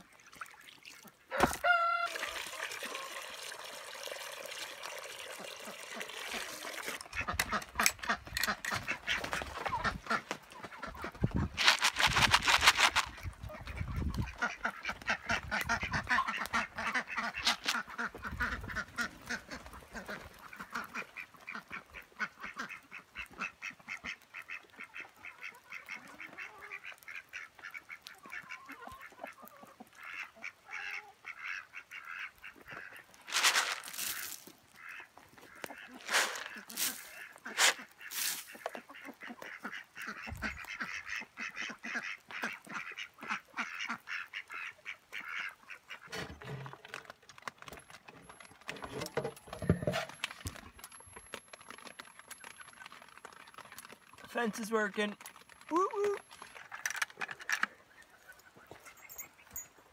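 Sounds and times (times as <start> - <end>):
ducks quacking: 5.2 - 47.1
grain poured on ground: 11.6 - 13.3, 33.2 - 34.6, 35.8 - 38.8.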